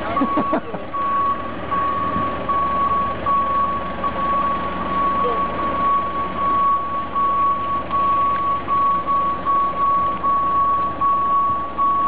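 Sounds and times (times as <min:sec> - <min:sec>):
warning alarm beeping: 0:00.2 - 0:12.0.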